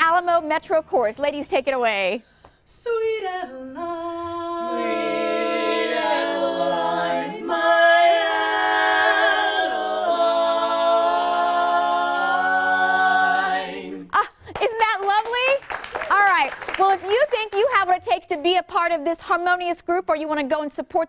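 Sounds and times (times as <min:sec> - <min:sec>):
women's chorus singing a cappella: 0:02.8 - 0:14.2.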